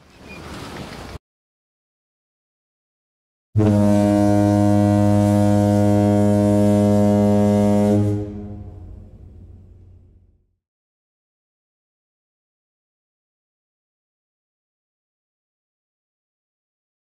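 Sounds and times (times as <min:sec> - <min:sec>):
long deep horn blast: 0:03.6 - 0:10.4.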